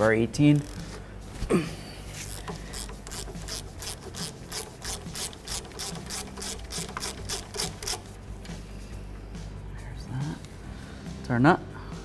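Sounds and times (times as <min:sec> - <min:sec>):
ratchet pawl clicking: 0:00.5 - 0:01.0, 0:02.2 - 0:08.1.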